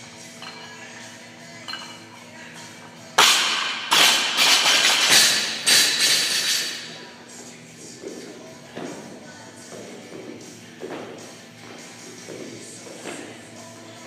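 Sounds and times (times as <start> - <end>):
background music: 0.0 - 14.0
barbells dropping on gym floor: 3.2 - 6.9
barbells bouncing and clattering: 3.2 - 7.1.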